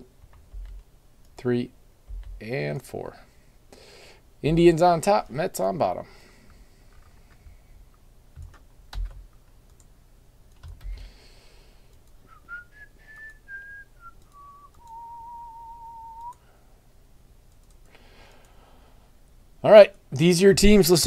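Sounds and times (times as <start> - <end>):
man whistling a tune: 12.3 - 16.4
computer mouse clicks: 17.5 - 18.6.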